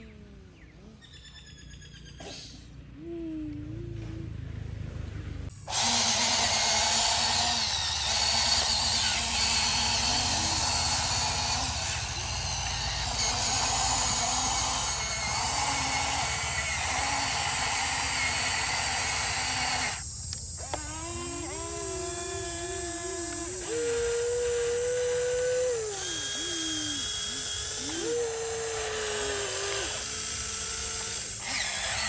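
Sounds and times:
electric motor and pump whirring: 0:05.2 - 0:32.0
motor whine sliding in pitch: 0:05.5 - 0:20.0, 0:20.6 - 0:32.0.

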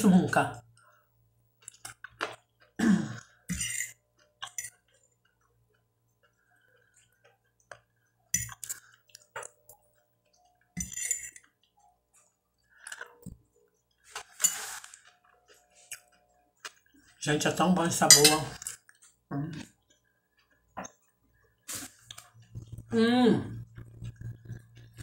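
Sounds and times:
fork scraping on plate: 0:03.5 - 0:04.8, 0:10.8 - 0:11.5, 0:14.1 - 0:15.0
chewing: 0:18.5 - 0:23.0, 0:23.6 - 0:25.0.

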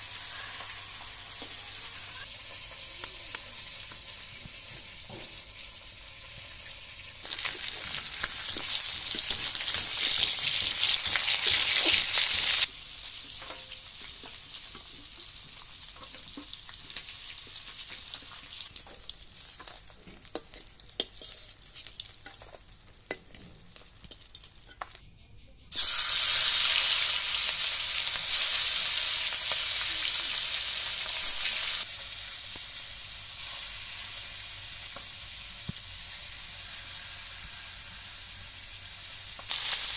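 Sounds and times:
fish sizzling in hot oil: 0:00.0 - 0:25.0, 0:25.7 - 0:39.9
metal spatula scraping wok: 0:21.0 - 0:25.0.

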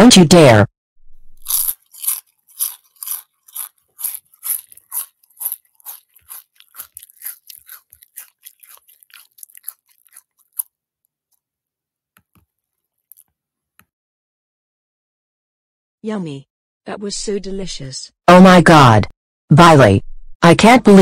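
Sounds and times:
cartoon crunching chewing bites: 0:01.4 - 0:10.8, 0:12.2 - 0:13.4.

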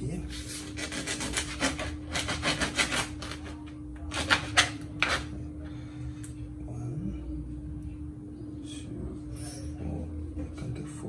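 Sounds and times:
knife scraping fish: 0:00.3 - 0:05.3.

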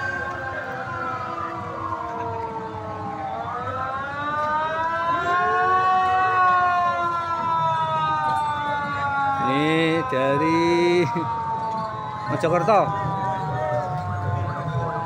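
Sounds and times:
sirens wailing: 0:00.0 - 0:15.0.

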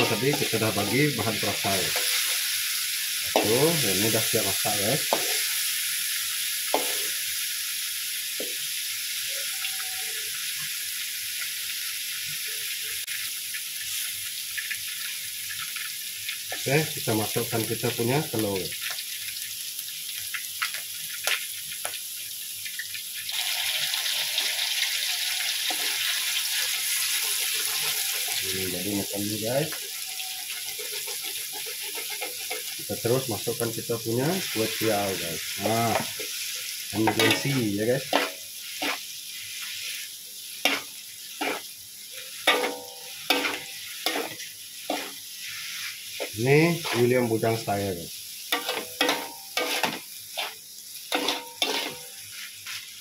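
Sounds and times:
utensils scraping and clanking on wok: 0:00.0 - 0:02.5, 0:05.0 - 0:05.5, 0:06.7 - 0:07.2, 0:25.5 - 0:28.4, 0:29.7 - 0:33.0, 0:37.0 - 0:40.0, 0:40.6 - 0:47.1, 0:48.5 - 0:52.9
hot oil sizzling in a wok: 0:00.0 - 0:53.0.

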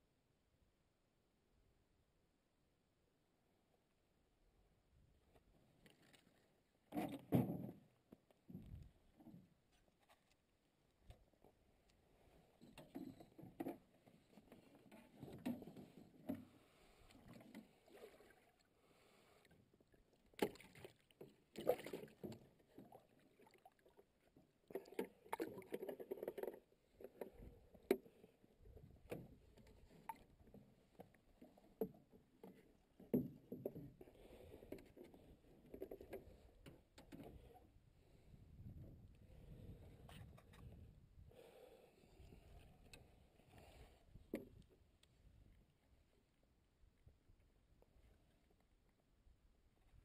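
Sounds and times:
fishing gear knocking and rustling: 0:24.7 - 0:37.4.

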